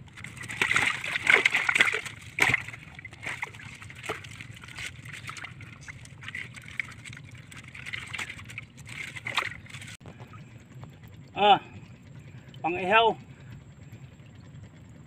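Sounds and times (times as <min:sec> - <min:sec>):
fish splashing in water: 0:00.0 - 0:10.0.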